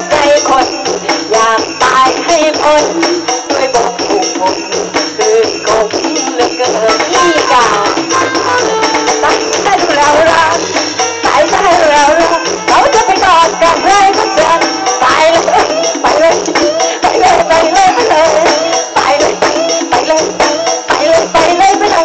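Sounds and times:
folk band music over loudspeakers: 0.0 - 22.0.

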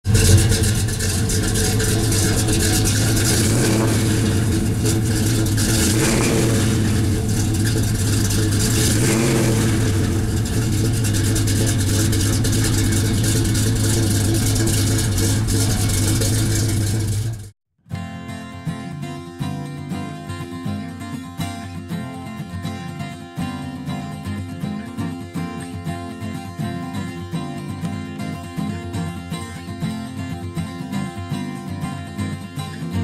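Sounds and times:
pickup truck engine idling: 0.0 - 17.5.

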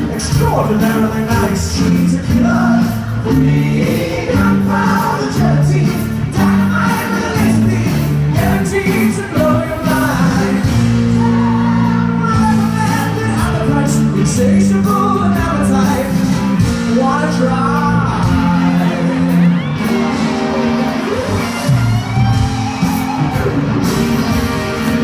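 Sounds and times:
man singing lead vocals: 0.0 - 19.8
live rock band playing: 0.0 - 25.0.

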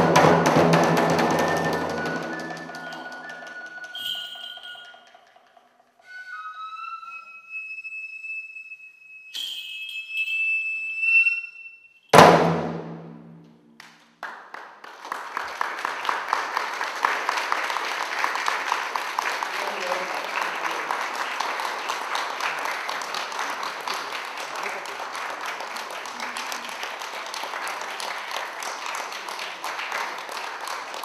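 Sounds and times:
large drum stroke: 0.0 - 2.9, 12.2 - 13.7
applause: 1.0 - 4.8, 13.8 - 31.0
high wind instrument long notes: 6.0 - 11.9.

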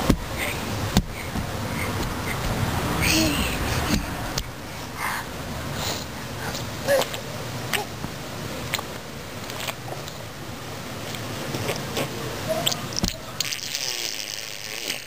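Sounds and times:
low steady background noise: 0.0 - 15.0
baby slurping water: 9.5 - 10.2, 11.0 - 12.8.

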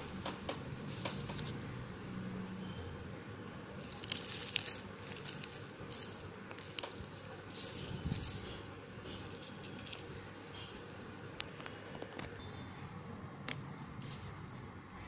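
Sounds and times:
pencil crumbling between fingers: 3.5 - 8.6, 9.2 - 10.9.

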